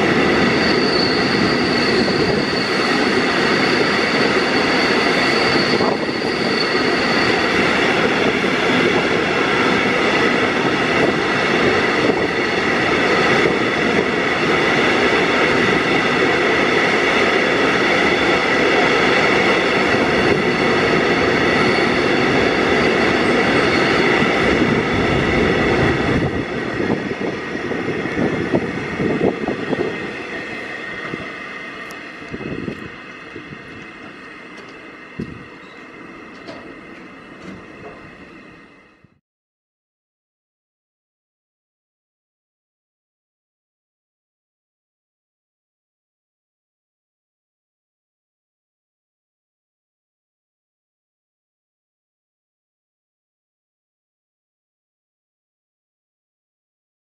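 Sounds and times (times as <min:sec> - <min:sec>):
train wheels on rail: 0:00.0 - 0:39.2
high ringing tones: 0:34.1 - 0:37.4.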